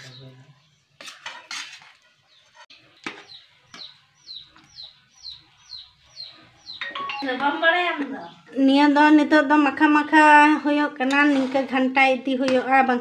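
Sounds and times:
bird chirping: 0:00.0 - 0:01.2, 0:02.0 - 0:09.8
utensils clinking on steel cookware: 0:01.0 - 0:03.3, 0:11.0 - 0:12.8.

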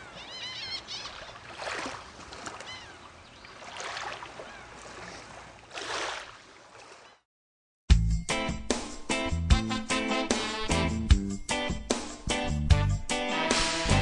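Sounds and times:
birds chirping: 0:00.0 - 0:01.8, 0:02.4 - 0:04.8
water lapping: 0:00.0 - 0:07.2.

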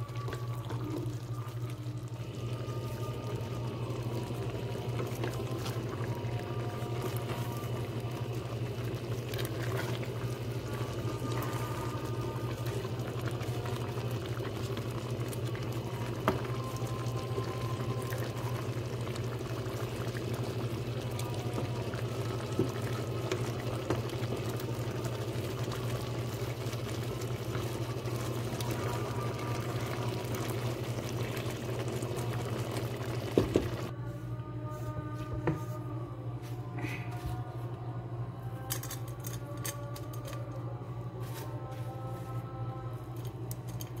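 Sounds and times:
stew bubbling in a pot: 0:00.0 - 0:34.0
low steady hum: 0:00.0 - 0:44.0.

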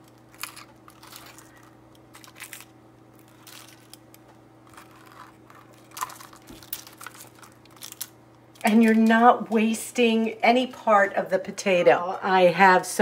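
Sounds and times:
tongs scraping potato skins: 0:00.0 - 0:09.4
faint steady hum: 0:00.0 - 0:13.0.

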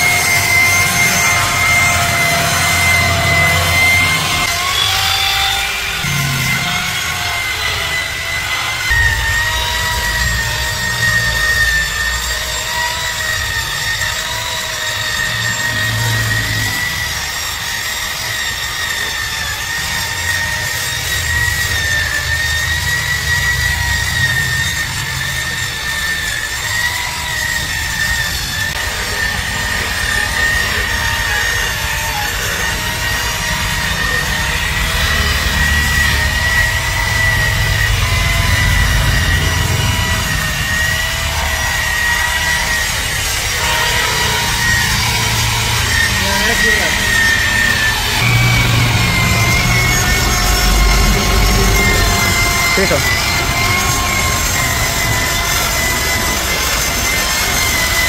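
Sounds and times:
polishing machine motor whine: 0:00.0 - 0:58.0
low rumble: 0:08.8 - 0:17.4, 0:33.3 - 0:57.0.

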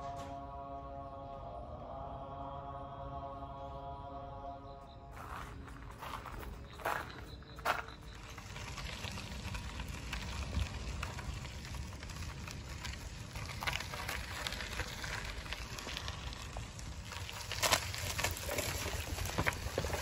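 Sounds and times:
low uneven rumble: 0:05.1 - 0:20.0
faint steady crackle: 0:05.2 - 0:20.0.

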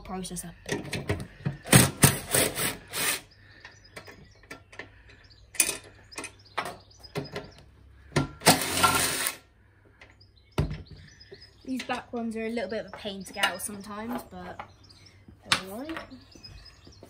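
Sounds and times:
bolts and tool clinking: 0:03.6 - 0:09.3.

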